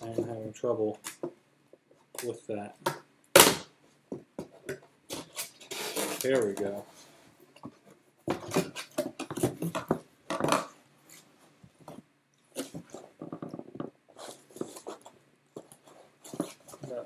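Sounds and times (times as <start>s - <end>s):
cardboard rustling and creaking: 4.4s - 17.0s.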